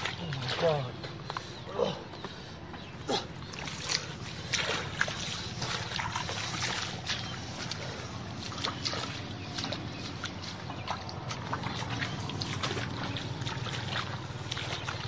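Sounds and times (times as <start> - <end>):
shallow water splashing and trickling: 0.0 - 1.6, 3.4 - 15.0.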